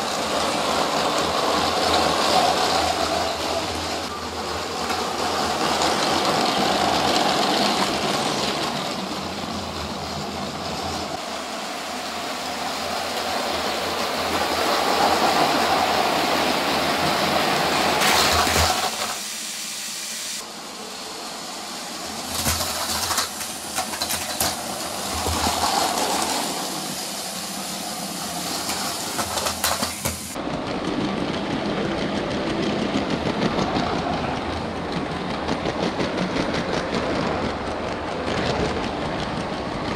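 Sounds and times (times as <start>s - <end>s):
toy train cars clacking: 0.0s - 11.2s, 12.2s - 19.2s, 22.0s - 39.9s
wheels rattling on plastic track: 0.0s - 11.2s, 12.6s - 19.2s, 22.1s - 39.9s
toy train motor whirring: 18.0s - 19.2s, 22.1s - 30.4s.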